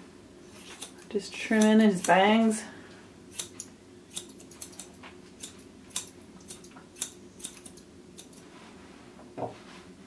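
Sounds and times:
scissors snipping hair: 0.6 - 2.2, 3.3 - 8.4.

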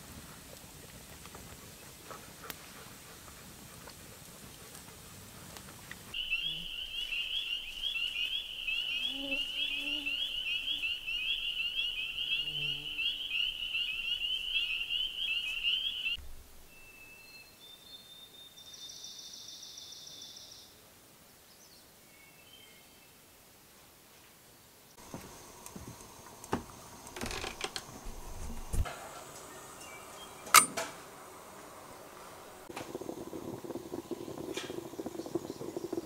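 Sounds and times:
frogs peeping: 6.2 - 16.2, 31.9 - 36.0.

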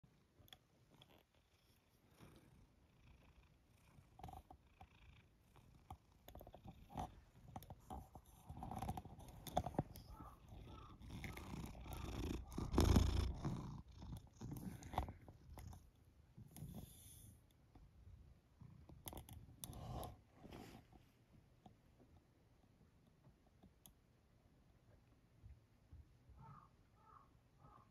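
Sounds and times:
cat purring: 0.1 - 21.2.

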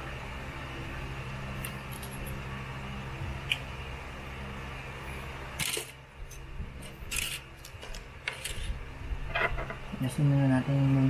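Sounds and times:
steady low hum: 0.0 - 11.0
tools scraping and clicking: 6.8 - 8.7.

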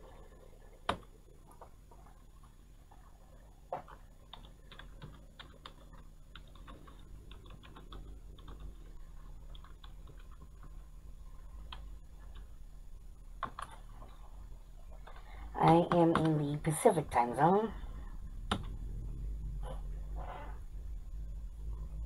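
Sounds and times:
keyboard typing: 3.8 - 10.8, 13.4 - 13.8, 15.0 - 16.7.

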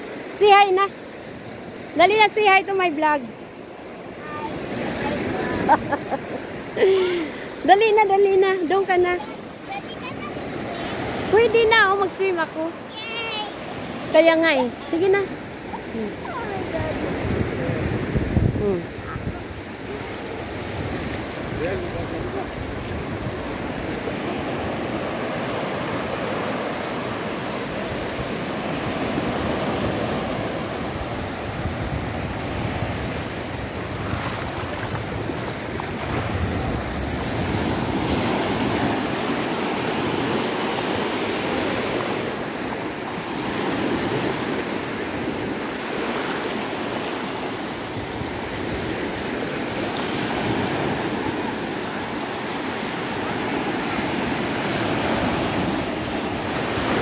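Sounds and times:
ocean waves breaking on shore: 0.0 - 57.0
wind rumbling on microphone: 14.7 - 40.6.

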